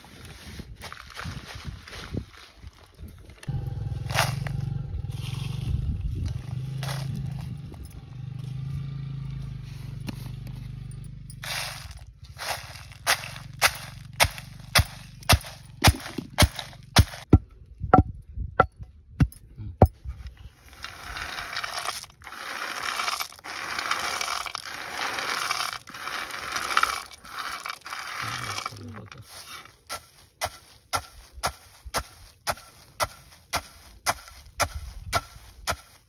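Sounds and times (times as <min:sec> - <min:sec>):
pestle pounding in stone mortar: 0:13.0 - 0:20.0
steady rustling noise: 0:19.9 - 0:36.0.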